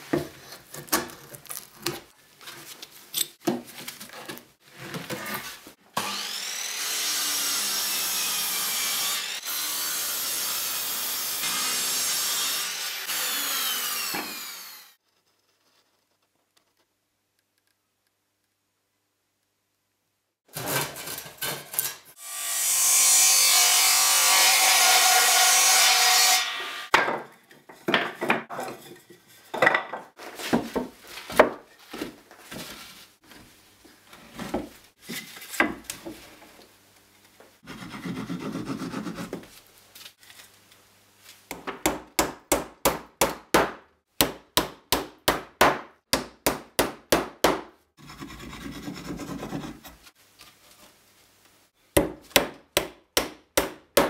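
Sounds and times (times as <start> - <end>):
table saw cutting wood: 5.9 - 15.0, 21.8 - 26.9.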